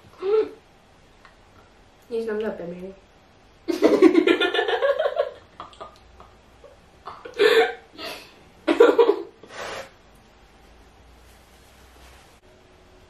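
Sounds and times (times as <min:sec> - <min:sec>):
girls laughing: 0:03.7 - 0:07.8.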